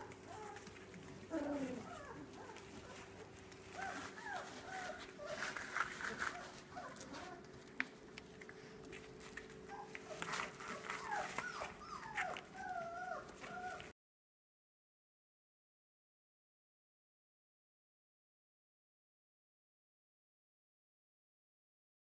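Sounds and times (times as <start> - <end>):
puppies whimpering and yipping: 0.0 - 7.6, 8.6 - 13.9.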